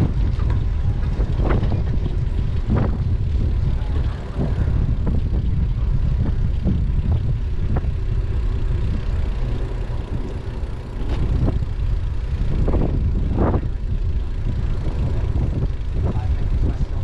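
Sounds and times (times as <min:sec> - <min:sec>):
bicycle knocking over bumps: 0:00.0 - 0:09.1, 0:10.1 - 0:17.0
wind buffeting microphone: 0:00.0 - 0:17.0.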